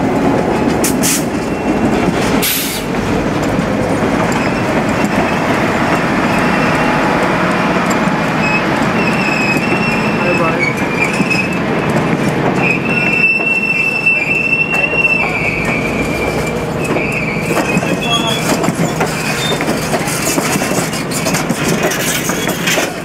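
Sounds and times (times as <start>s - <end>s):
train rumbling: 0.0s - 23.0s
wheels clicking over rail joints: 0.0s - 23.0s
train wheels squealing: 1.4s - 1.9s, 4.3s - 7.1s, 8.4s - 11.6s, 12.6s - 23.0s.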